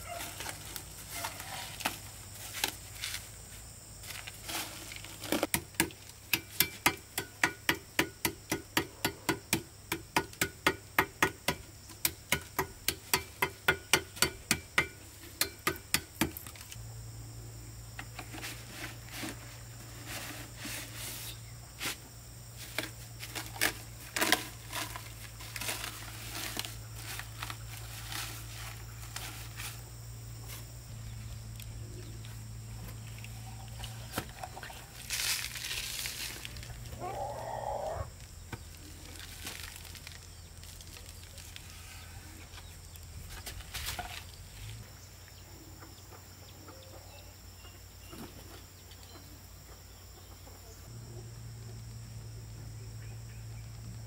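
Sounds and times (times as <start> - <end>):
knocking with hollow ring: 5.5 - 16.4.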